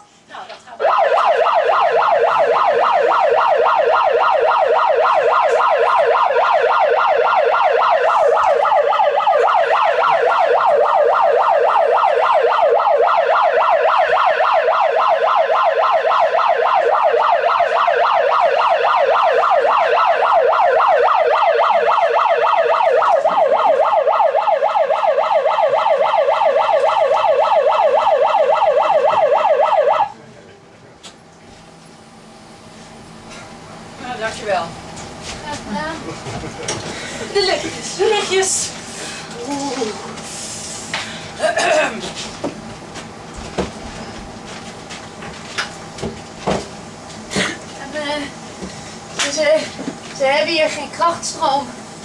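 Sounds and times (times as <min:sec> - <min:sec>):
megaphone siren wailing: 0:00.8 - 0:30.2.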